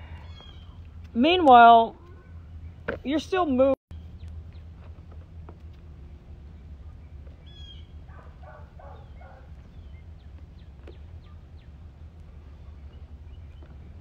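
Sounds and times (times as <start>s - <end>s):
birds chirping: 0.0s - 14.0s
steady low hum: 0.0s - 14.0s.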